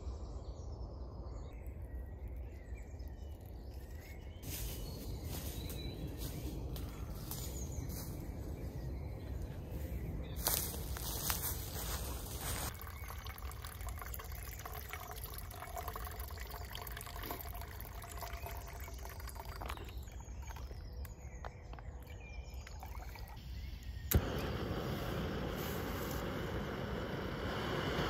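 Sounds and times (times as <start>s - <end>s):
water trickling into metal pot: 12.7s - 20.8s, 22.0s - 23.4s
gas stove burner hissing: 24.0s - 28.0s
stove igniter click: 24.1s - 25.4s.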